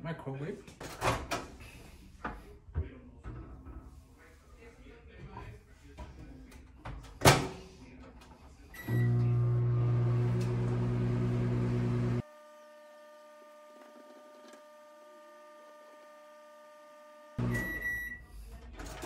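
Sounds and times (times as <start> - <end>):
microwave oven humming: 8.8 - 13.7, 14.4 - 18.3.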